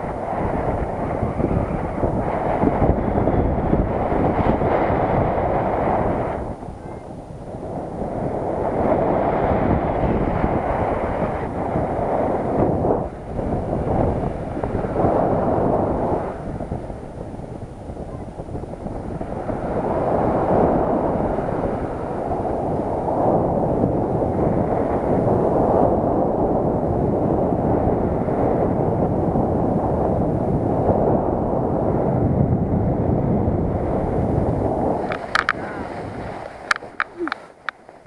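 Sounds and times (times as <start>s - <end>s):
wind rushing over microphone: 0.0s - 38.0s.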